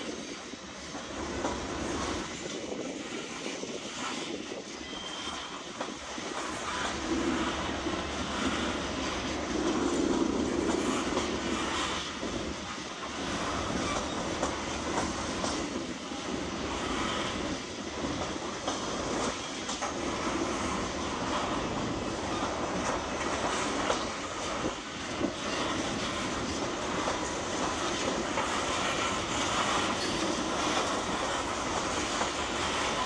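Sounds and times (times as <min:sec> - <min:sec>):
freight train rolling past: 0:00.0 - 0:33.0
steel wheels clattering on rails: 0:00.0 - 0:33.0.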